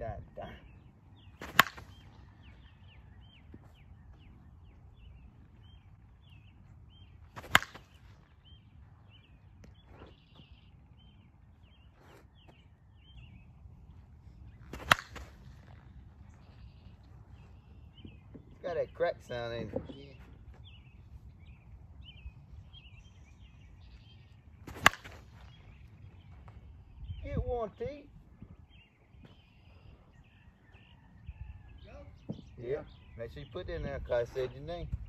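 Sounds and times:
bat hitting softball: 1.4s - 2.0s, 7.3s - 8.0s, 14.7s - 15.4s, 24.6s - 25.3s.

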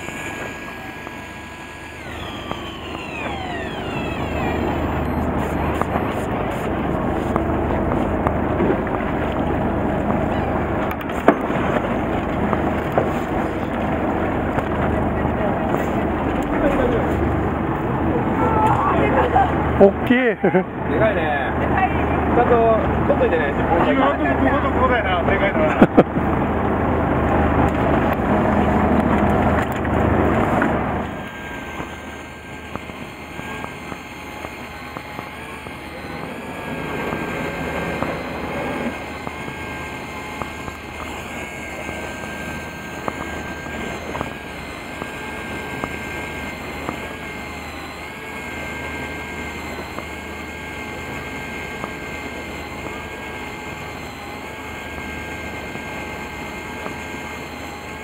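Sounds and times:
boat engine drone: 0.0s - 58.0s
faint high whine: 0.0s - 58.0s.

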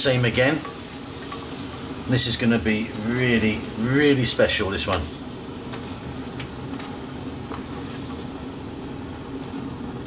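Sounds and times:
faint ticks from hot wok: 0.0s - 10.0s
steady low hum: 0.0s - 10.0s.

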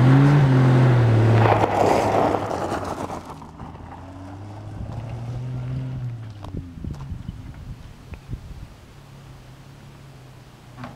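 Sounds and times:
car engine passing by: 0.0s - 7.1s.

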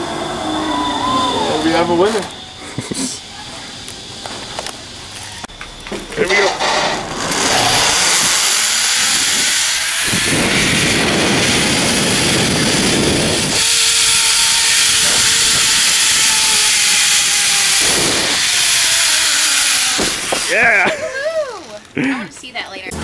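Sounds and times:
zipline pulleys hissing on cable: 0.0s - 5.5s, 6.1s - 21.9s
faint whine: 0.0s - 13.6s
wind rumbling on microphone: 5.5s - 19.4s.

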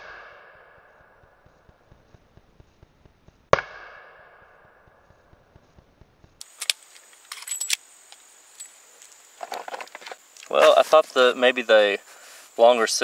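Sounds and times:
revolver metallic clicks: 6.4s - 10.5s.

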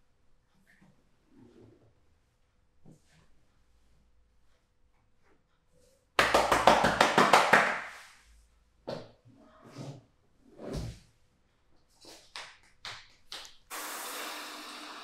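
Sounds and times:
hand slaps: 6.2s - 8.0s.

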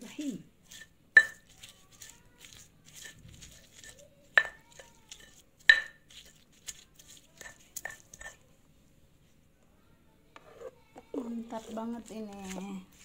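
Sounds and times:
pestle crushing in stone mortar: 0.7s - 8.4s.

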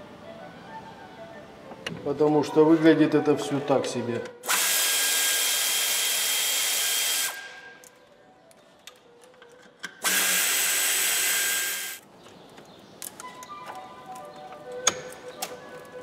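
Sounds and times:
power drill whining: 10.0s - 12.0s.

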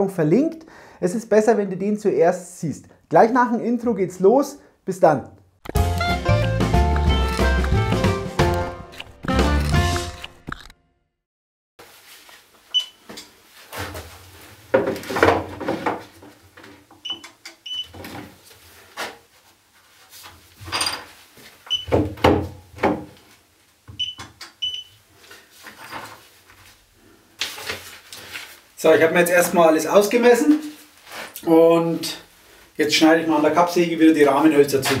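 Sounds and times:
rustling: 11.8s - 14.6s, 25.1s - 28.8s, 30.0s - 31.4s
footsteps: 34.8s - 35.0s.

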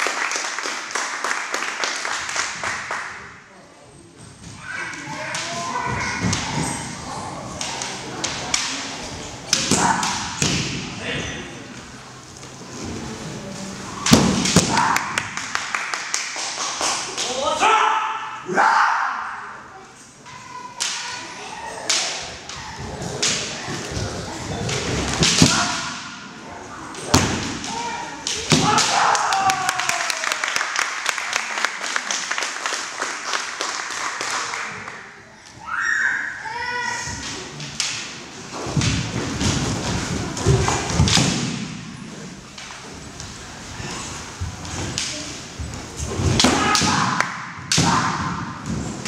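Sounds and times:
bamboo swords clashing: 5.0s - 10.9s, 14.0s - 15.1s, 21.8s - 24.0s, 24.6s - 26.3s, 26.9s - 29.6s, 37.1s - 41.9s, 46.0s - 49.0s
fighters shouting: 27.7s - 30.3s
bamboo swords clacking: 37.2s - 39.7s, 46.2s - 48.4s.

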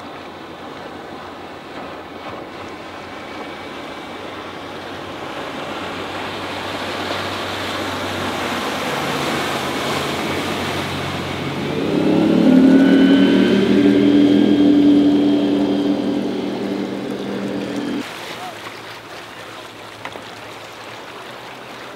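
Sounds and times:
boat engine droning: 0.9s - 18.1s
rush of hull and spray: 5.6s - 18.5s.

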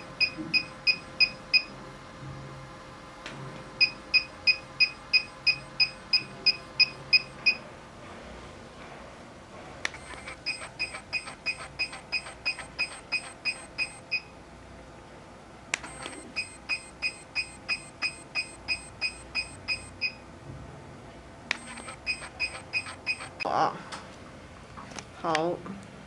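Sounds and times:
machine beeping: 0.0s - 1.8s, 3.8s - 7.7s, 9.9s - 14.4s, 15.8s - 20.2s, 21.5s - 23.5s
sharp click: 21.5s - 23.4s.

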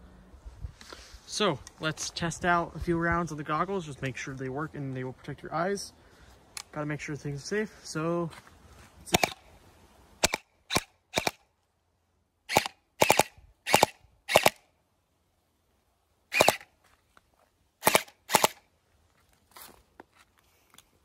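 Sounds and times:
gel blaster shots cracking: 9.1s - 9.4s, 10.2s - 11.4s, 12.5s - 14.6s, 16.3s - 16.7s, 17.8s - 18.6s.

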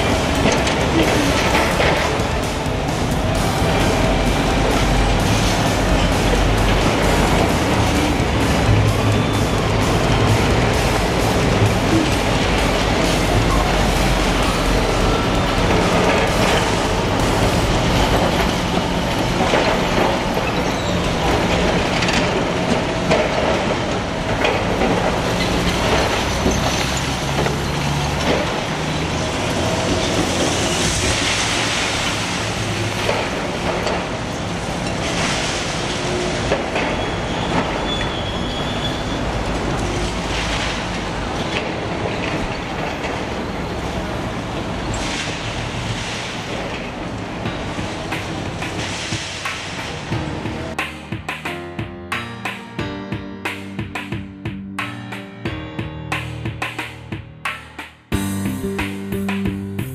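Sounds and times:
excavator diesel engine running: 0.0s - 35.1s
metallic squeal: 37.0s - 39.4s.

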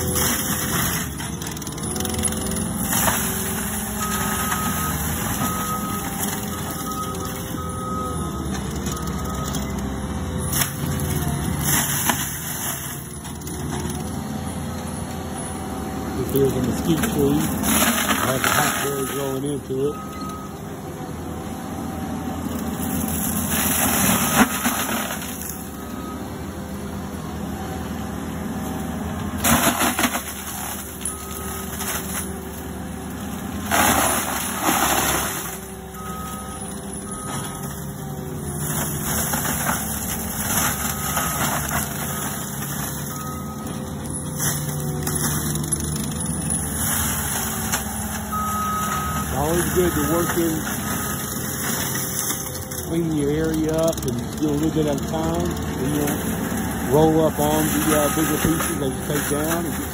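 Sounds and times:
diesel engine under load: 0.0s - 59.9s
mulcher shredding wood: 0.0s - 59.9s
back-up alarm beeping: 3.9s - 10.0s, 18.8s - 20.7s, 35.1s - 38.4s, 40.7s - 45.0s, 47.4s - 55.4s, 56.9s - 59.9s.

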